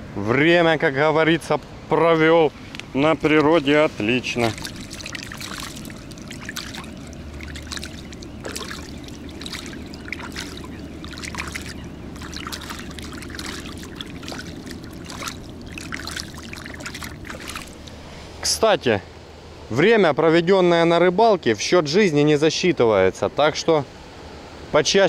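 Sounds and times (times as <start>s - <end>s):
hands splashing in water: 4.1s - 18.0s.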